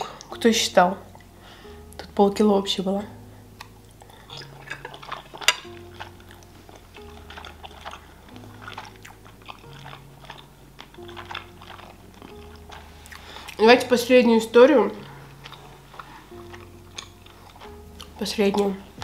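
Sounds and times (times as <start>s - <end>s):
quiet background music with bass: 0.0s - 19.0s
chewing food: 3.6s - 19.0s.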